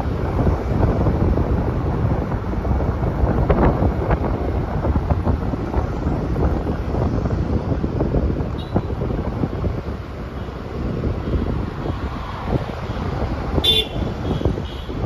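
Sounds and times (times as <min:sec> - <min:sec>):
road traffic: 0:00.0 - 0:15.0
wind buffeting microphone: 0:00.0 - 0:15.0.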